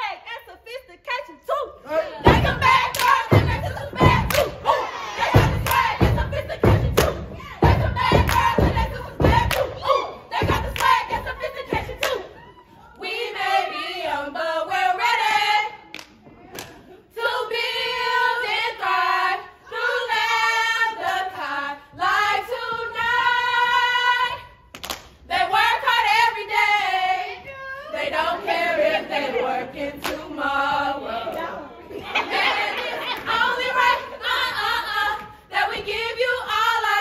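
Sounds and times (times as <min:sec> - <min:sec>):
women chanting and singing: 0:00.0 - 0:37.0
sharp claps: 0:02.9 - 0:04.6, 0:05.4 - 0:07.3, 0:08.1 - 0:09.8, 0:10.5 - 0:11.1, 0:24.7 - 0:25.2.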